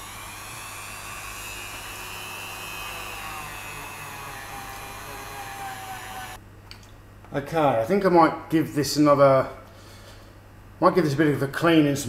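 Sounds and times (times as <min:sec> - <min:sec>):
rotary tool motor whine: 0:00.0 - 0:06.4.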